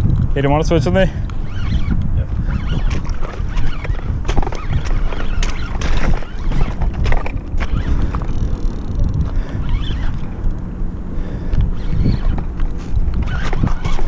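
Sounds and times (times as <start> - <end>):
low wind rumble: 0.0 - 14.0
fishing reel clicking: 2.6 - 10.7.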